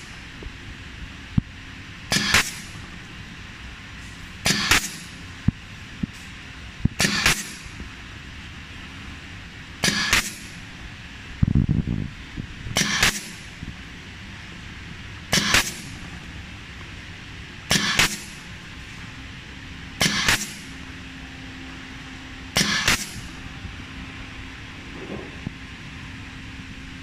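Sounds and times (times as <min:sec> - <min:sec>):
faint steady hum: 0:00.0 - 0:27.0
pneumatic machine air bursts: 0:02.1 - 0:02.9, 0:04.0 - 0:05.2, 0:07.0 - 0:07.8, 0:09.8 - 0:10.7, 0:12.7 - 0:13.6, 0:15.3 - 0:16.0, 0:17.7 - 0:18.5, 0:20.0 - 0:20.8, 0:22.5 - 0:23.4.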